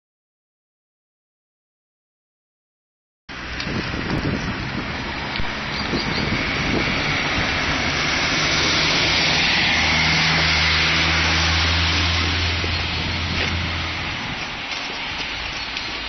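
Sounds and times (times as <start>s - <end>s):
car engine hum: 3.3s - 16.0s
tyre hiss on wet road: 8.0s - 16.0s.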